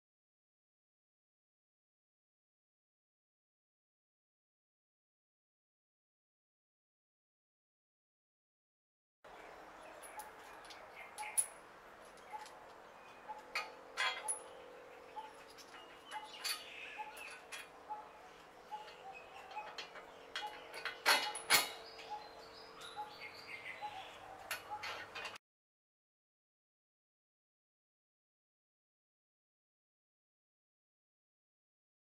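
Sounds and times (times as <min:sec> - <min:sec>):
metal nuts and washers clinking: 0:09.9 - 0:12.6, 0:13.3 - 0:14.6, 0:15.2 - 0:17.8, 0:18.8 - 0:22.2, 0:24.4 - 0:25.4
sharp metal knocks: 0:13.4 - 0:14.6, 0:18.8 - 0:22.2.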